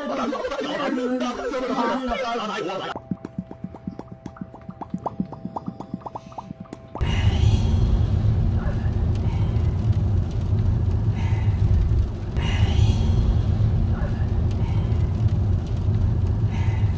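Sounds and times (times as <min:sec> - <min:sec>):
car road rumble inside cabin: 0:07.0 - 0:16.9.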